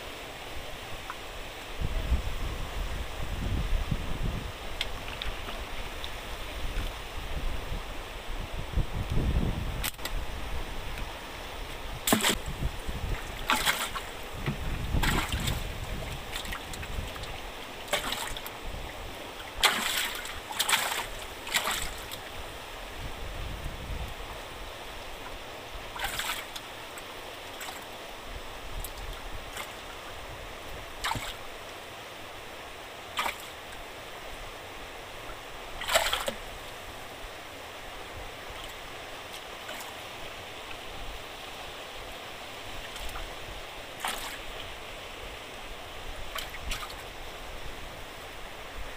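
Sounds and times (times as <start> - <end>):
water rushing from sluice gate: 0.0 - 48.9
sharp knocks and splashes: 9.8 - 10.2, 11.9 - 18.6, 19.4 - 22.3, 25.2 - 26.7, 27.5 - 27.9, 28.8 - 29.9, 31.0 - 31.5, 33.1 - 33.8, 35.8 - 36.6, 38.5 - 40.0, 42.8 - 43.3, 44.0 - 44.7, 46.3 - 47.1.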